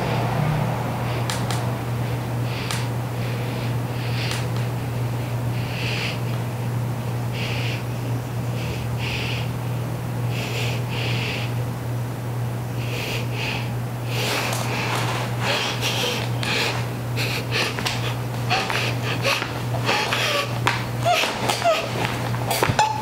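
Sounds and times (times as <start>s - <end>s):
steady low hum: 0.0s - 23.0s
woman breathing hard through nose: 2.0s - 6.4s, 10.3s - 11.5s, 12.8s - 22.7s
rustling: 14.1s - 22.8s.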